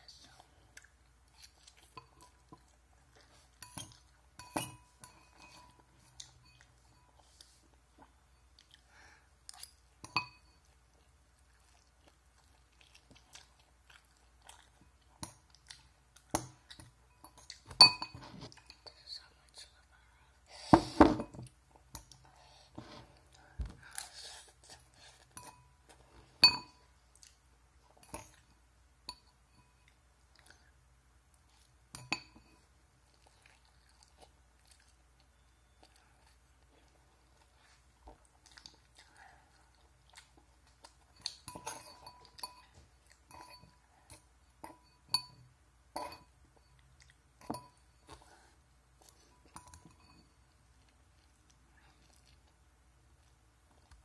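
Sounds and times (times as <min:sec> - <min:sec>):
utensil clinking on ceramic bowl: 0:03.6 - 0:07.1, 0:09.6 - 0:10.7, 0:16.3 - 0:18.3, 0:26.4 - 0:26.8, 0:31.9 - 0:32.7, 0:41.1 - 0:46.8, 0:47.4 - 0:48.2, 0:49.3 - 0:50.4.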